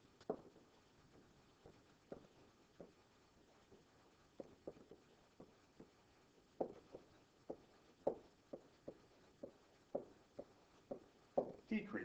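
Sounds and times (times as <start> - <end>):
stylus tapping on pen surface: 6.6 - 11.6.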